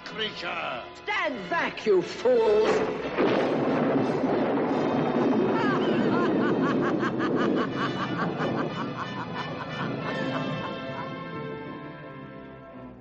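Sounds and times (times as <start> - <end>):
dramatic orchestral music: 0.0 - 13.0
rushing noise: 2.9 - 11.0
woman cackling laugh: 5.8 - 11.2.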